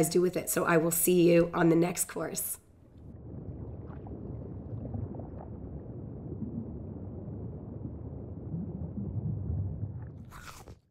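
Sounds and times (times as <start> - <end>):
low steady rumble: 2.8 - 10.3.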